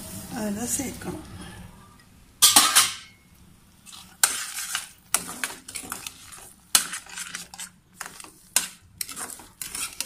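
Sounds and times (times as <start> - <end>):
metal spoon scraping steel pan: 3.9 - 10.0.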